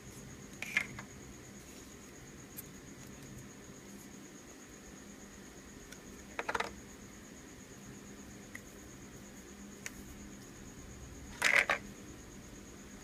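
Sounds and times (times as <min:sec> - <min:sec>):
plastic toy pieces clattering: 0:11.4 - 0:11.8.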